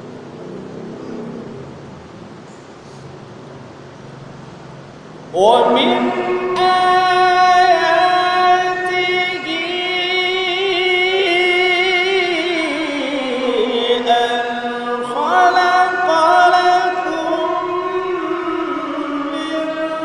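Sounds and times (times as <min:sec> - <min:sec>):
man chanting recitation: 0:05.3 - 0:20.0.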